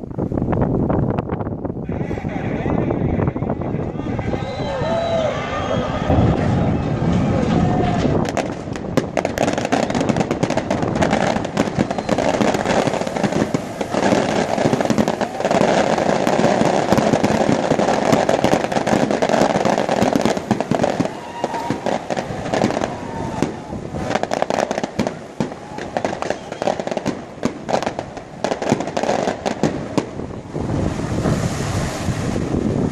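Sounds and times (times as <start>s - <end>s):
water rushing and splashing: 3.5s - 32.9s
sharp crackling pops: 7.6s - 30.8s.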